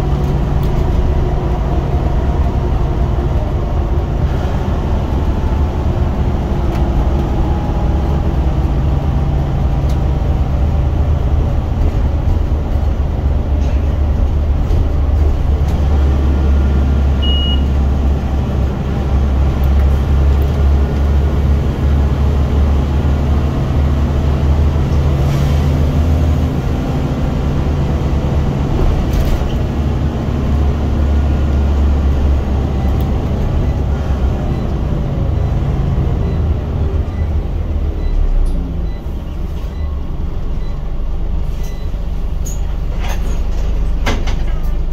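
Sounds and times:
bus engine drone: 0:00.0 - 0:44.9
short high beep: 0:17.2 - 0:17.8.

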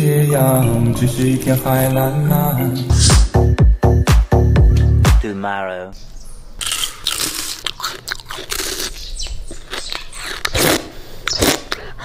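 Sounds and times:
crunching into ice pop: 0:06.6 - 0:11.8.

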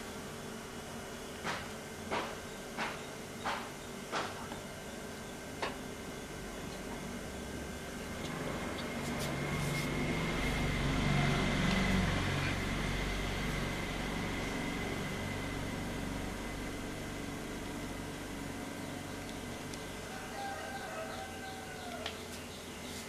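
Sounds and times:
low mechanical hum: 0:00.0 - 0:23.0.

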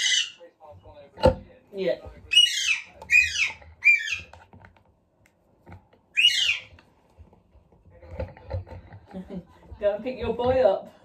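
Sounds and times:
parakeet squawking: 0:00.0 - 0:00.4, 0:02.3 - 0:04.4, 0:06.1 - 0:06.7.

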